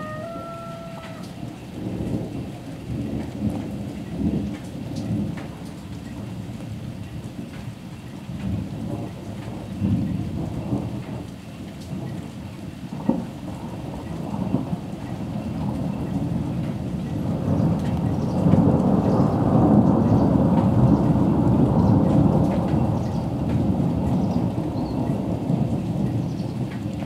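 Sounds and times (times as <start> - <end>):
thunder rumbling: 0.0 - 6.6, 13.0 - 27.0
light raindrops: 0.0 - 27.0.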